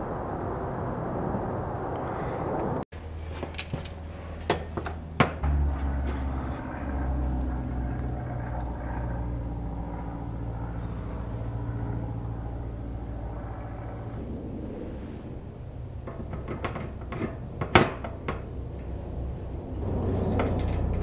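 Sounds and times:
steady low rumble: 0.0s - 21.0s
metal clicks of bicycle wheel: 20.2s - 21.0s.

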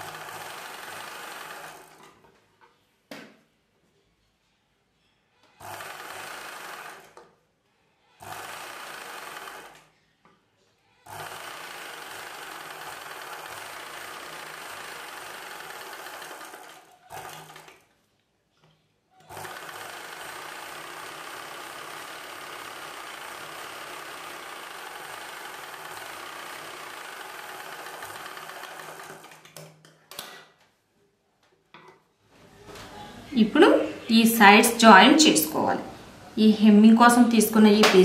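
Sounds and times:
sewing machine running: 0.0s - 2.2s, 5.6s - 7.2s, 8.2s - 9.9s, 11.0s - 17.9s, 19.2s - 29.7s.

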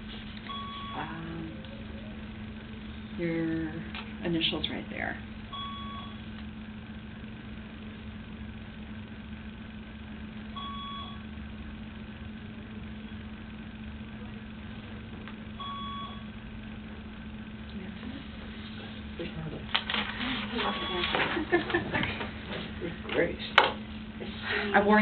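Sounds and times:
machine hum: 0.0s - 25.0s.

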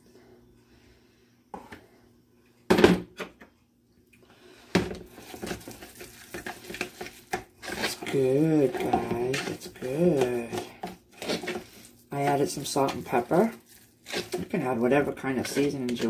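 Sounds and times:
utensil stirring and scraping in plastic tub: 5.0s - 16.0s.

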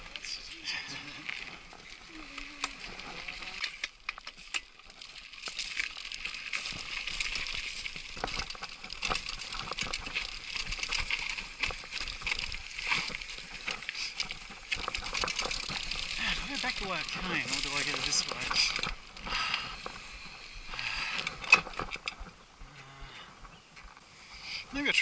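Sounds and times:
bike clicking and rattling: 0.0s - 24.0s
tyres hissing on dirt: 15.8s - 21.4s.

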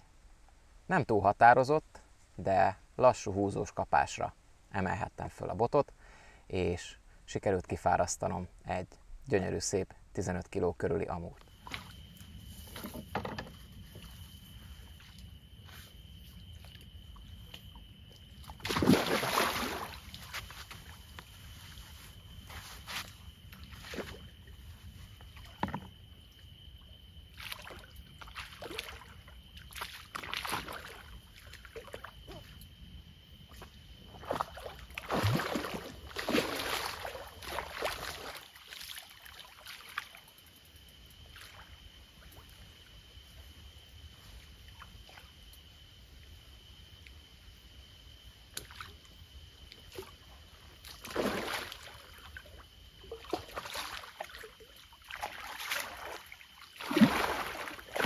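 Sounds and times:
fish splashing in water: 18.5s - 20.2s, 34.2s - 40.2s, 51.0s - 52.4s, 53.0s - 58.0s.

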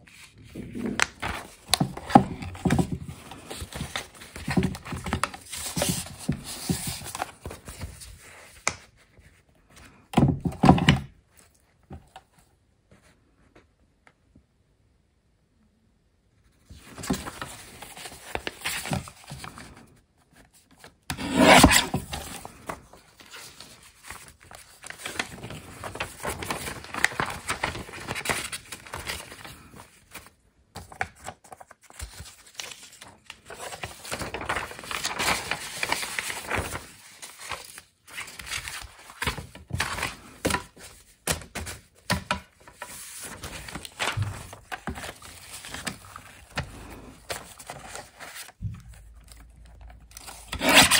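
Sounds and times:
paper rubbing and scraping: 21.1s - 30.2s, 33.5s - 39.3s, 50.1s - 50.9s.

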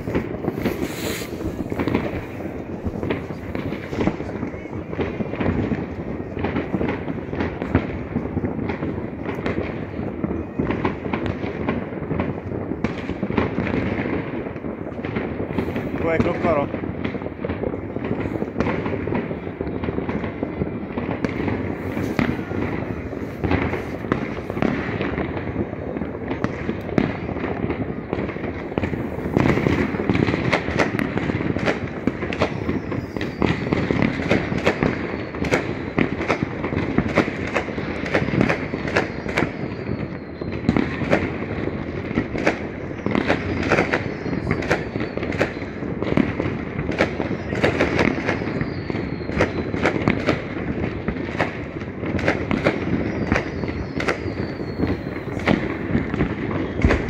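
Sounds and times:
fireworks bangs and crackle: 0.0s - 57.0s
high fireworks whistles: 0.0s - 57.0s.

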